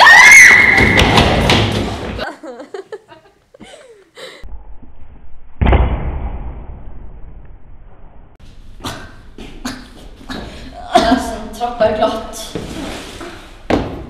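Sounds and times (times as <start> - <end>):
person falling down stairs: 0.7 - 2.3
loud thud: 5.5 - 7.4.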